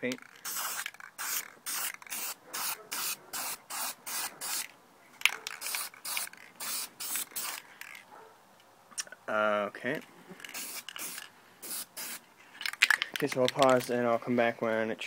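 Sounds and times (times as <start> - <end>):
spray paint can bursts: 0.2 - 4.7, 5.4 - 7.6, 10.5 - 12.2.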